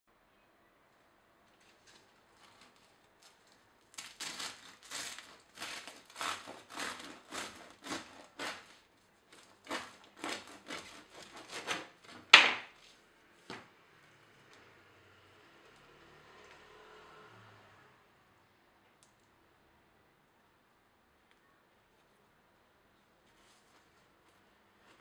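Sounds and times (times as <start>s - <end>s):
bread knife sawing crusty bread: 4.0s - 12.9s.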